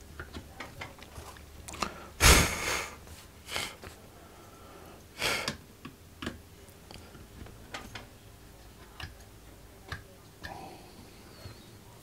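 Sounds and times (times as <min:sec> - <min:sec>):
clicks and taps of electronic components: 0:05.5 - 0:08.1.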